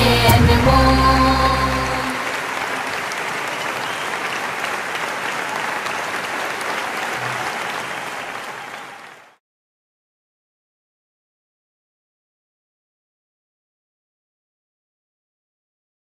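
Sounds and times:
audience applauding: 0.2s - 9.4s.

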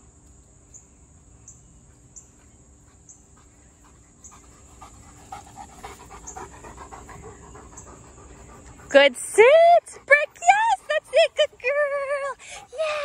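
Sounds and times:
dog panting: 1.9s - 13.0s.

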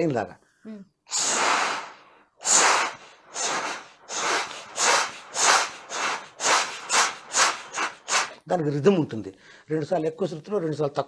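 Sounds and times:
long breath hiss: 1.1s - 8.4s.

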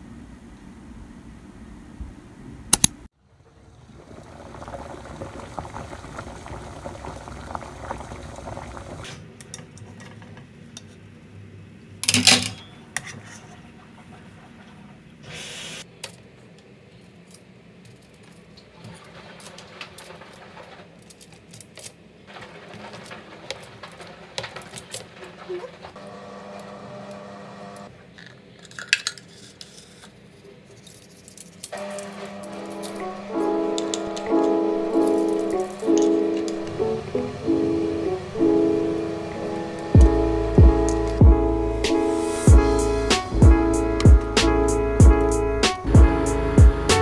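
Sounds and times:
water bubbling in a pot: 3.3s - 9.1s
clicks and crinkles of foil: 17.0s - 26.0s, 28.2s - 32.1s.

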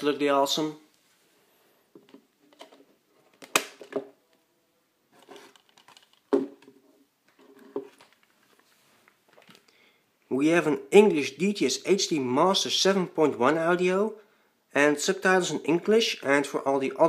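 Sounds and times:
clicks and knocks of case handling: 2.0s - 4.1s, 5.2s - 8.3s.

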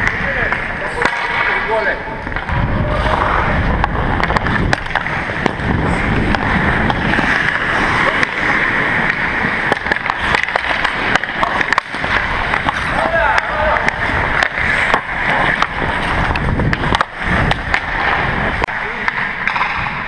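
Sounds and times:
hockey sticks and puck clicking: 0.0s - 20.0s
skates scraping on ice: 0.0s - 20.0s
wind on microphone: 2.1s - 9.7s, 12.1s - 20.0s.

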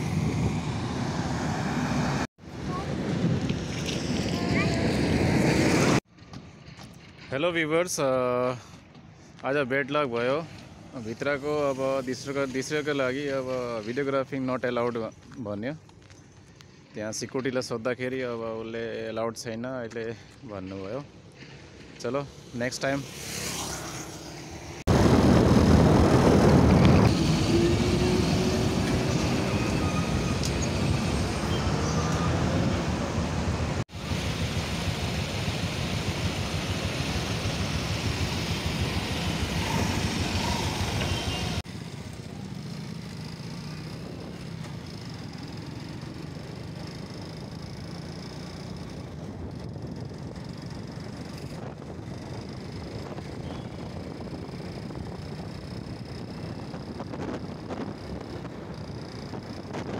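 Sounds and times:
noise from moving motorcycle: 0.0s - 7.2s, 21.1s - 59.9s
vehicle tyre noise: 19.5s - 59.9s
truck engine: 21.1s - 59.9s
motorcycle engine: 22.8s - 59.9s.

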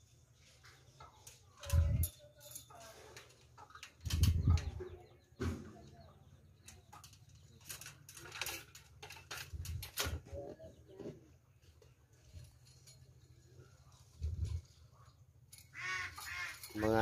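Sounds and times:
metal pipes and ladder clicking: 0.4s - 10.6s, 15.5s - 17.0s.

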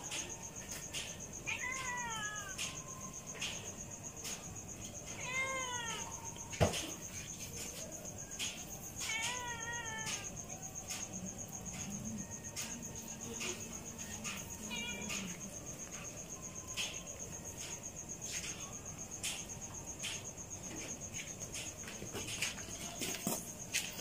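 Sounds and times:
cat meowing: 1.4s - 3.0s, 5.1s - 6.4s, 9.0s - 10.4s, 14.3s - 15.4s.

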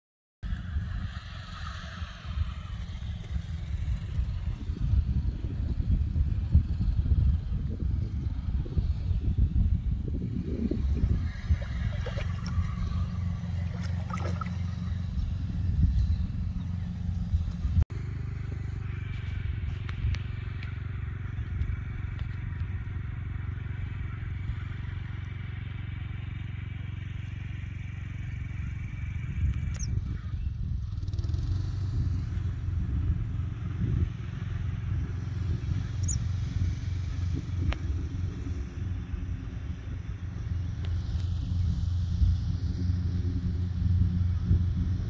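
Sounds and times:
wind buffeting microphone: 0.5s - 17.8s, 28.6s - 45.0s.

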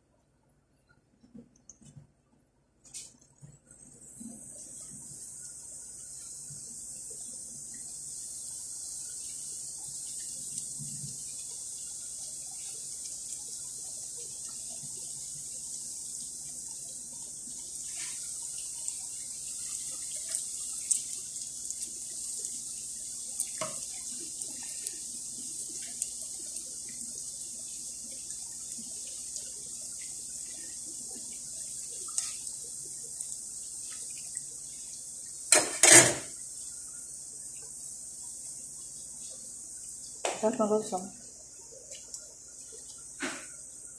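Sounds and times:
dough sizzling in hot oil: 2.8s - 43.9s
oil crackles and pops: 9.8s - 11.2s, 16.4s - 34.6s, 41.7s - 43.6s.

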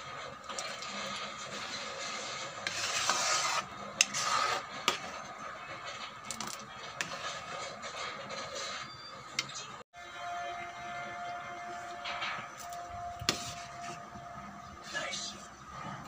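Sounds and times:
spatula scraping metal pan: 0.0s - 9.1s, 11.6s - 14.1s.

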